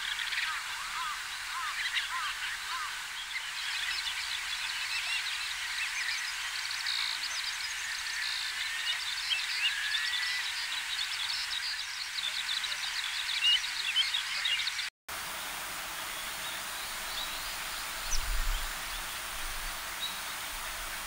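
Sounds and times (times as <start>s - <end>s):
shorebirds chirping and trilling: 0.0s - 7.4s.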